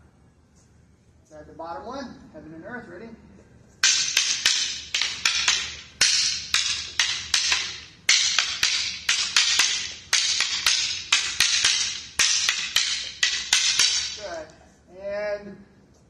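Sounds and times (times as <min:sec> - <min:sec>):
fighting sticks clacking: 0:03.8 - 0:14.5.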